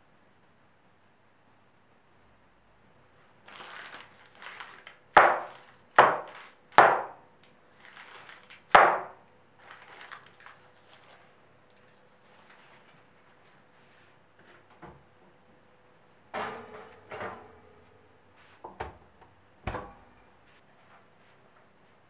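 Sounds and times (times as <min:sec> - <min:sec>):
baking paper rustling: 0:03.4 - 0:14.2.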